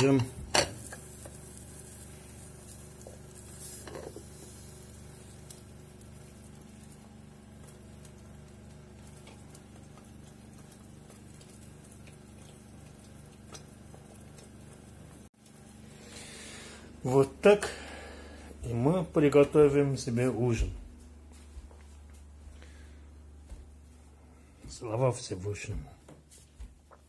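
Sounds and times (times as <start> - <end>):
eggs sizzling in a pan: 0.0 - 18.0
small ticks and crackle: 0.8 - 15.7.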